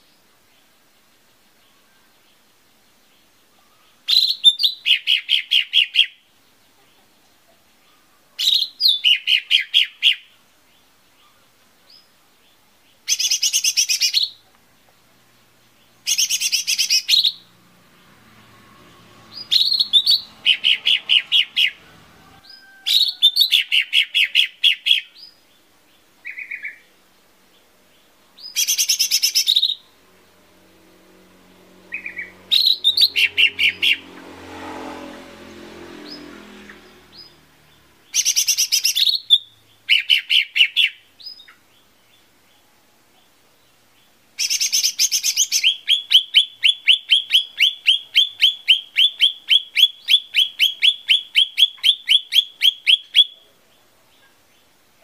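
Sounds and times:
bird chattering song: 0.0 - 18.4, 19.2 - 30.0, 31.8 - 34.2, 36.0 - 54.8.

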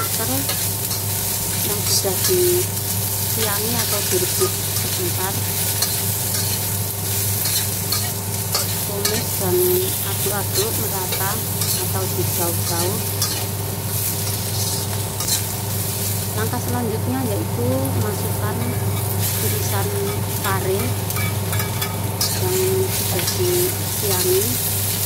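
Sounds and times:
food sizzling in hot oil: 0.0 - 25.0
steady hum: 0.0 - 25.0
metal spatula scraping wok: 3.8 - 16.2, 18.6 - 24.5.

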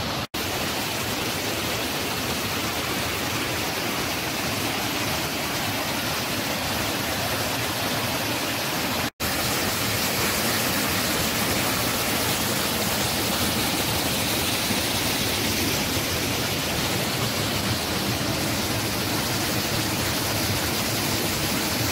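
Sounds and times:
creek rushing over rocks: 0.0 - 21.9.

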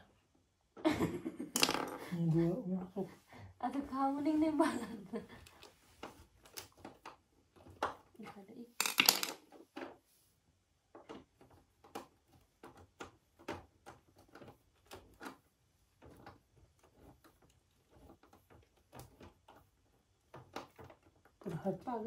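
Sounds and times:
hands clicking on plastic parts: 5.3 - 10.0, 10.8 - 22.0.

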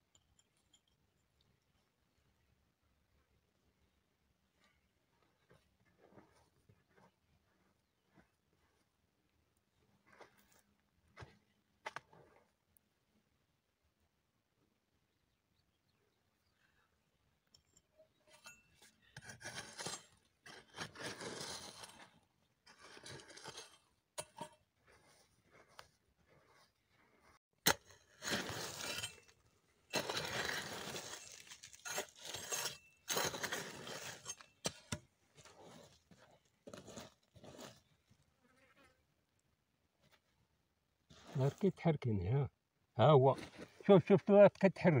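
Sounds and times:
hands scraping dry soil: 18.2 - 38.4, 41.0 - 41.8.

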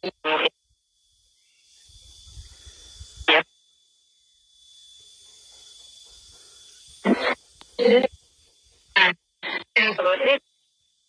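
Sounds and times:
radio snatches scanning stations: 0.0 - 0.5
steady high hiss: 0.2 - 11.0.

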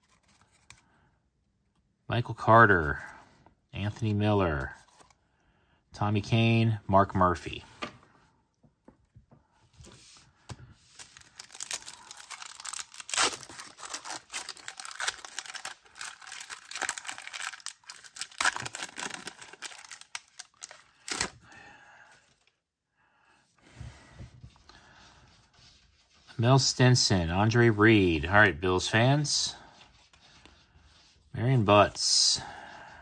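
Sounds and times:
foil wrapper tearing and crinkling: 10.9 - 21.4.

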